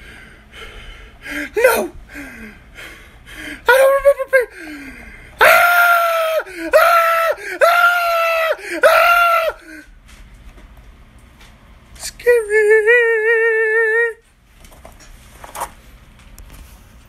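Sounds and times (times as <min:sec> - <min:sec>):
person screaming in fright: 0:05.4 - 0:09.8.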